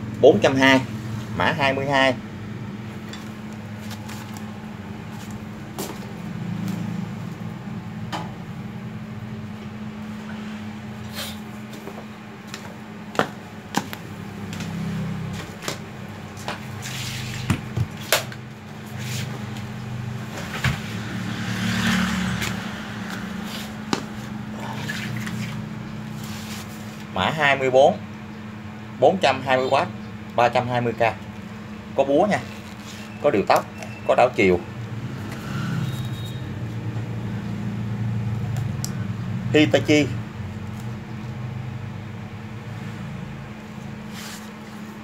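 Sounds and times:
steady low hum: 0.0s - 21.4s, 22.0s - 33.5s.

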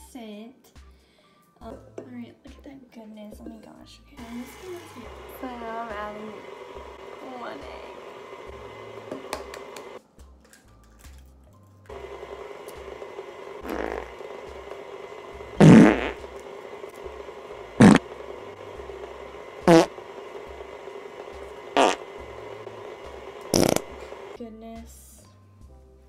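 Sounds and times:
fart noises: 13.6s - 14.2s, 15.6s - 16.3s, 17.8s - 18.1s, 19.6s - 20.0s, 21.8s - 22.0s, 23.5s - 23.9s.

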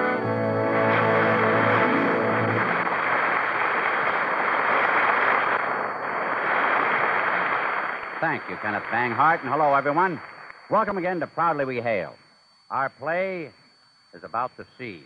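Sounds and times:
theme music: 0.0s - 3.2s
studio audience applauding: 0.7s - 10.2s.

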